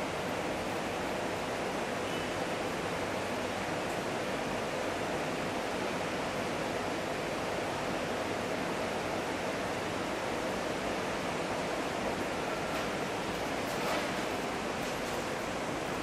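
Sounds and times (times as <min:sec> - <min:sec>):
city street hum: 0:00.0 - 0:16.0.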